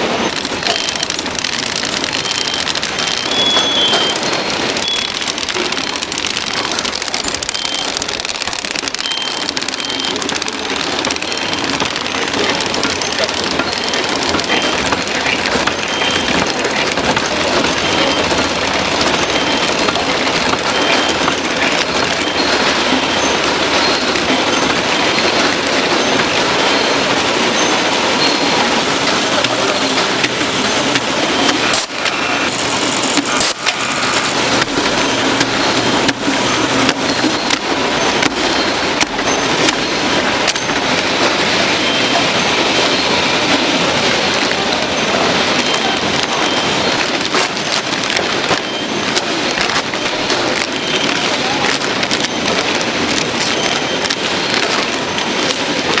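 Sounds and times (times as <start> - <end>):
factory machinery clattering: 0.0 - 56.0.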